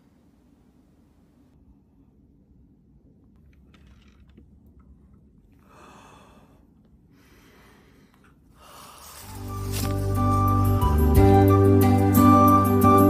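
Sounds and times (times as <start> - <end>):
person sighing: 5.6 - 9.3
music: 9.1 - 13.0.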